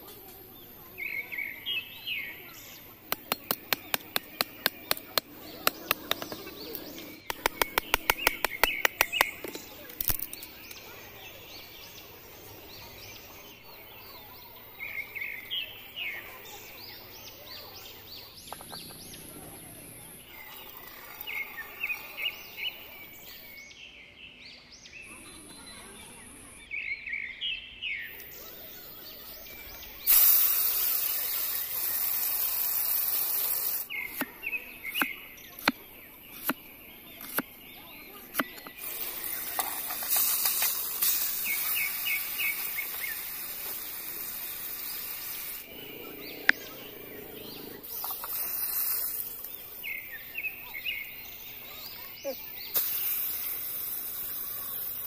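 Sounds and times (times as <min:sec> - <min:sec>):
birds chirping: 0:00.0 - 0:55.0
cleaver chopping on wooden board: 0:03.1 - 0:06.4, 0:34.1 - 0:36.6, 0:37.2 - 0:37.5, 0:38.3 - 0:38.8
steady hiss: 0:28.1 - 0:36.6, 0:38.7 - 0:51.8, 0:52.4 - 0:55.0.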